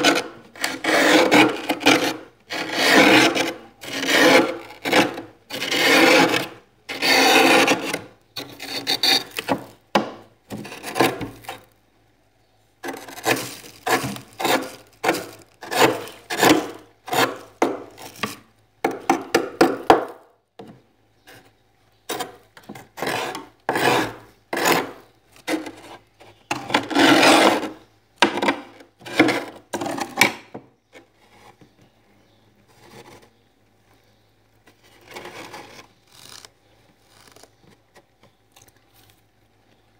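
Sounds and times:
scraper scraping frost: 0.0s - 9.8s, 12.8s - 18.4s, 23.0s - 27.8s, 34.9s - 37.6s.

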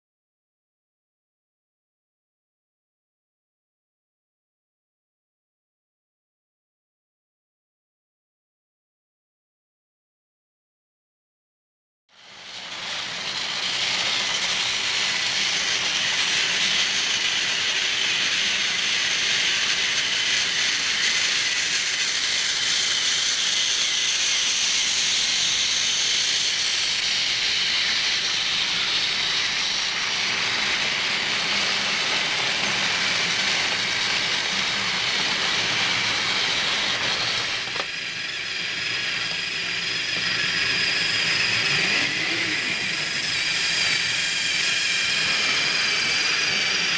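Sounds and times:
toy train motors whirring: 12.1s - 46.9s
toy train wheels rattling on track: 12.2s - 46.9s.

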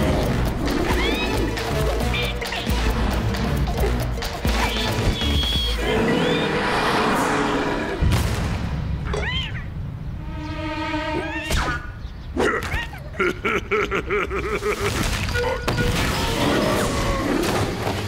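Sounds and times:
cartoon background music: 0.0s - 7.4s, 9.0s - 12.0s.

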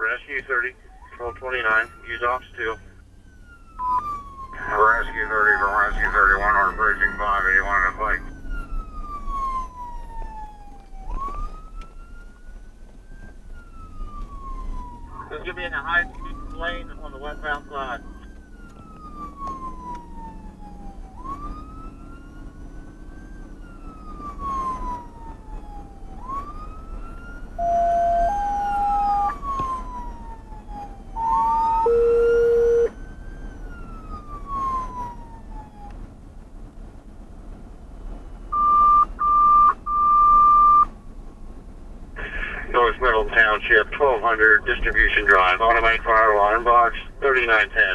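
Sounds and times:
electronic siren wailing: 0.9s - 12.4s, 13.1s - 35.9s, 38.5s - 40.9s
two-tone radio paging tones: 38.6s - 40.9s.

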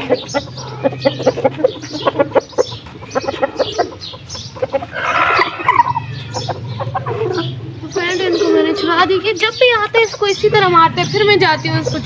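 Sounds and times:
harsh chicken squawk: 0.0s - 9.0s
chickens clucking: 0.0s - 12.0s.

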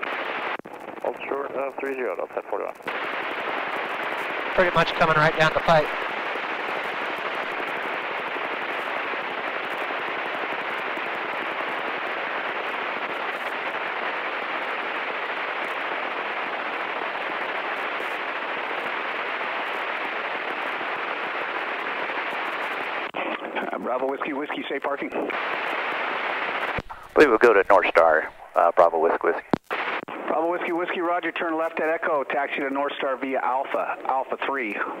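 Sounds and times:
aircraft cabin noise hiss: 4.5s - 7.5s, 26.7s - 29.5s.

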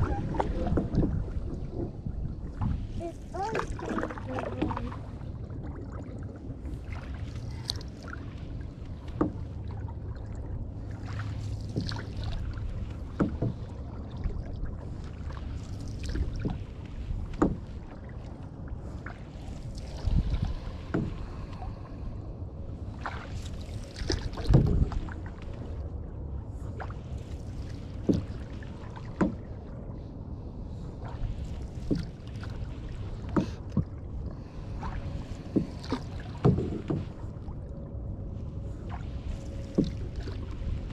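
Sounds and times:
paddle knocks and splashes: 0.0s - 21.8s, 22.9s - 25.8s, 26.6s - 29.8s, 31.0s - 37.7s, 38.8s - 40.9s
wind rumble on microphone: 0.0s - 40.9s.

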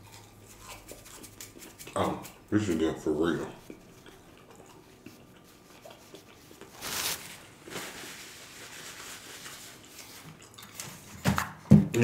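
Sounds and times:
soft chewing: 0.0s - 11.1s
paper napkin rustling: 6.7s - 10.2s.

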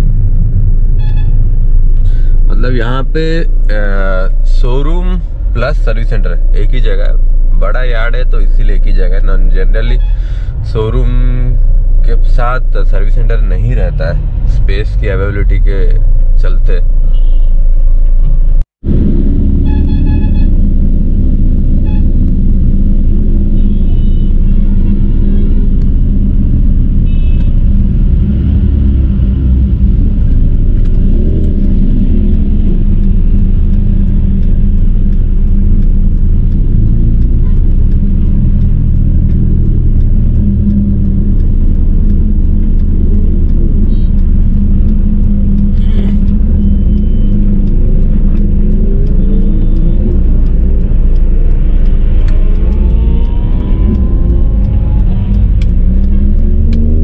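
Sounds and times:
car driving rumble from inside: 0.0s - 57.0s
car horn honks: 17.1s - 17.6s, 27.0s - 27.6s.

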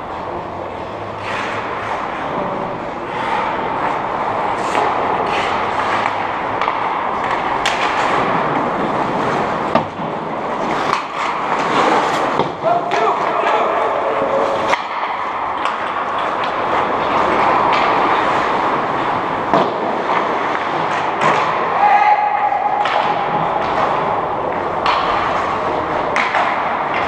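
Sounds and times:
hockey sticks and puck clacking: 0.0s - 27.0s
skate blades scraping ice: 0.0s - 27.0s
steady rink hiss: 0.1s - 13.6s.

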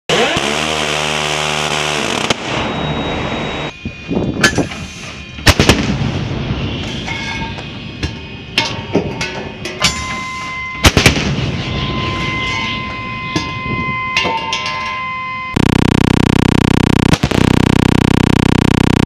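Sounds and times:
steady droning hum: 0.8s - 19.0s
naval gun firing: 5.4s - 6.1s, 10.8s - 11.5s.

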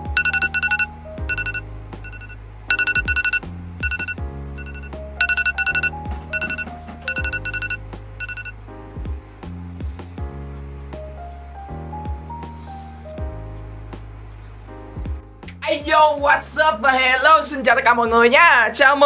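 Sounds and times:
electronic alarm beeping: 0.0s - 8.6s
background music with bass line: 0.0s - 16.7s.

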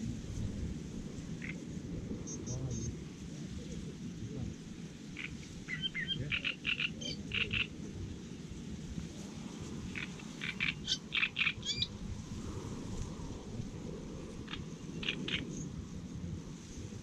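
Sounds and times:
frogs croaking: 1.3s - 1.7s, 5.0s - 7.8s, 9.8s - 11.9s, 14.4s - 15.7s.

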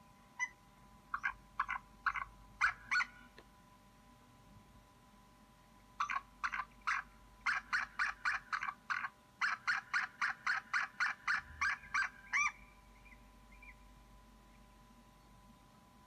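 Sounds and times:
eagle yelping calls: 0.4s - 3.4s, 6.0s - 13.9s.

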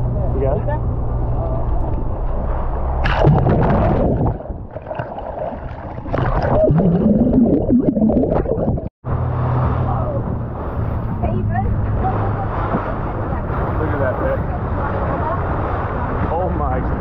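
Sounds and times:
water rushing and splashing: 2.9s - 17.0s
underwater gurgling bubbles: 3.1s - 8.9s
boat engine humming: 4.5s - 16.0s.

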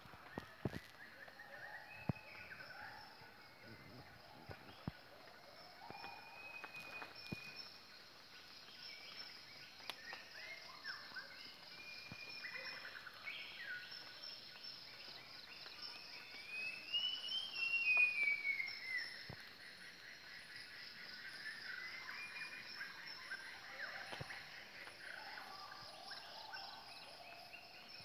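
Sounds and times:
whistled bird and animal calls: 0.4s - 7.7s, 9.9s - 14.1s, 15.9s - 19.3s.

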